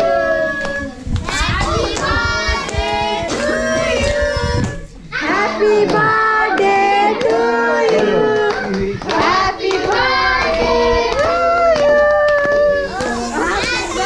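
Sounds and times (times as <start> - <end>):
people singing: 0.0 - 14.0
hands clapping: 5.8 - 13.8.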